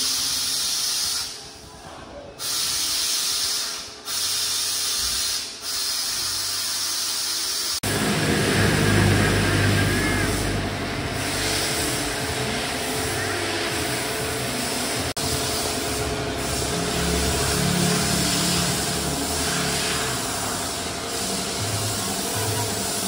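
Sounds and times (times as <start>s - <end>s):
car wash sprayer hissing: 0.0s - 1.5s, 2.4s - 23.0s
foam spraying from hose: 0.0s - 1.5s, 2.4s - 23.0s
low machine hum: 7.8s - 23.0s.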